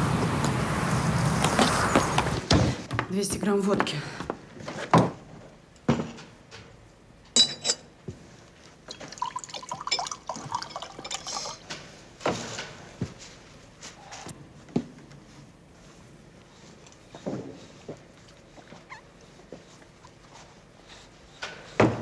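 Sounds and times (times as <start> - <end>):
bright glass clink: 7.4 - 7.9, 9.2 - 11.6
liquid pouring into glass: 8.9 - 11.7.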